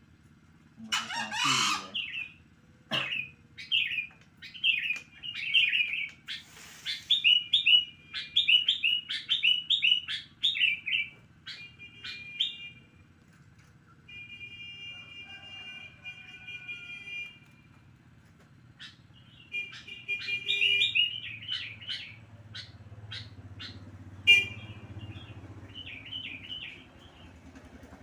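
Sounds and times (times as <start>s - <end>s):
caged birds calling: 0.4s - 13.2s, 13.9s - 28.0s.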